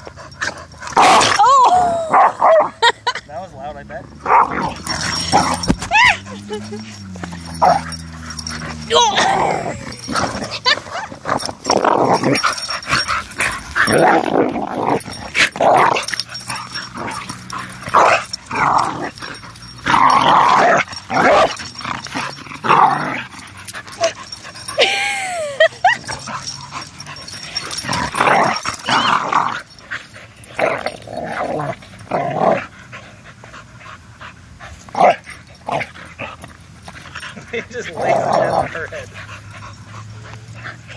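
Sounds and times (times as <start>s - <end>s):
dogs growling and snarling: 0.0s - 40.9s
dog whining: 4.2s - 32.2s.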